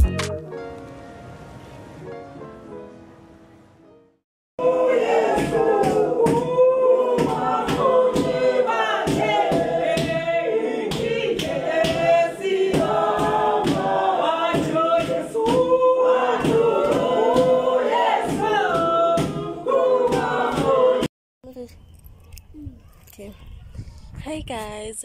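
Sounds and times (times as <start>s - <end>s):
choir singing: 4.6s - 21.1s.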